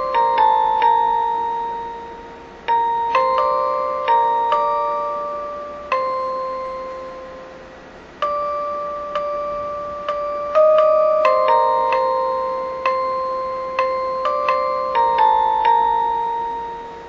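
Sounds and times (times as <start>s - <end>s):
slow bell-like struck notes: 0.0s - 17.0s.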